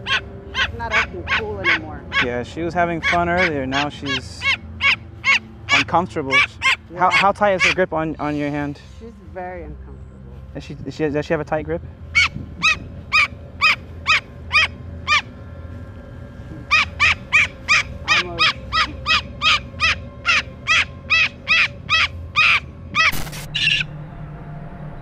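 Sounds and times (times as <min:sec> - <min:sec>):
harsh cockatoo squawk: 0:00.0 - 0:07.9, 0:12.1 - 0:15.4, 0:16.6 - 0:23.9
cockatoo calling: 0:00.0 - 0:08.0, 0:12.1 - 0:15.5, 0:16.4 - 0:23.9.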